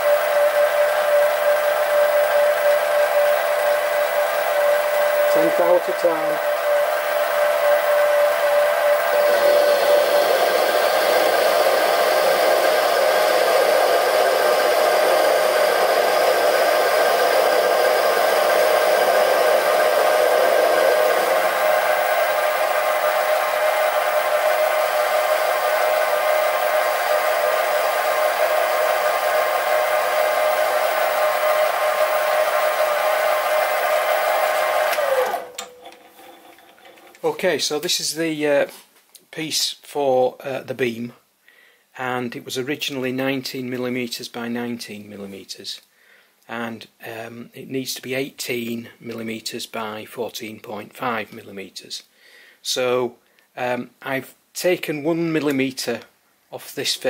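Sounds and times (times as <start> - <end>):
lathe motor whine: 0.0 - 37.4
lathe tool cutting steel: 0.0 - 37.4.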